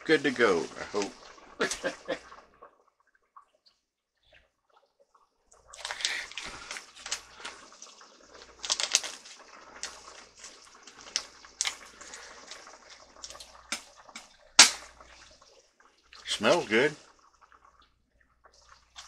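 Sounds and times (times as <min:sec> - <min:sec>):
curry bubbling and popping: 0:00.0 - 0:19.0.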